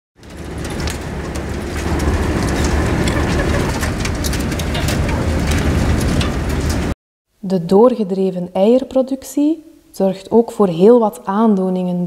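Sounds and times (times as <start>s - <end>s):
clicks and rattles against wire cages: 0.2s - 6.9s
low mechanical hum: 0.2s - 6.9s
hens clucking: 2.0s - 4.1s.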